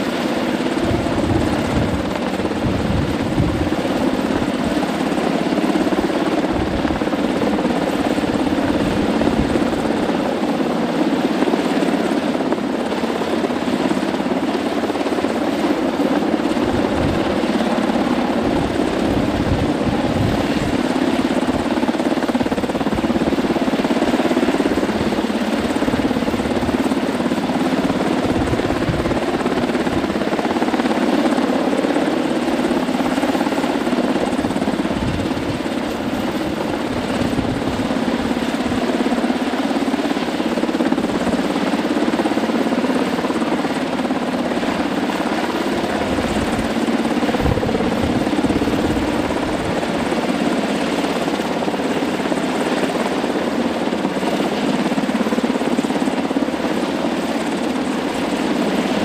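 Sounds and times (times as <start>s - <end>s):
helicopter rotor and engine: 0.0s - 59.0s
wind buffeting microphone: 0.5s - 10.3s, 16.0s - 32.8s, 33.4s - 39.2s, 45.6s - 50.5s.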